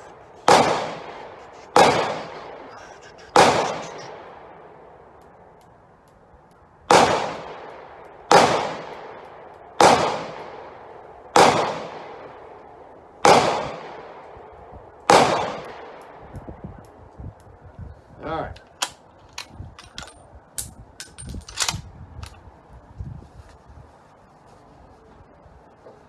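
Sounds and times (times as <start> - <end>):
gunshots: 0.4 - 4.5, 6.9 - 9.2, 9.8 - 10.7, 11.4 - 12.2, 13.2 - 14.2, 15.1 - 16.0.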